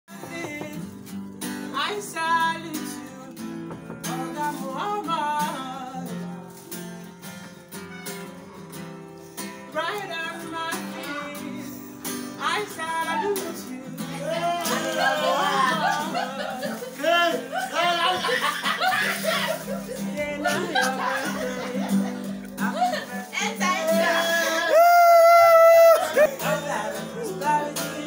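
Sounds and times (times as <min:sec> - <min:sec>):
man singing: 0:00.1 - 0:06.8, 0:09.6 - 0:28.0
acoustic guitar strumming chords: 0:00.1 - 0:28.0.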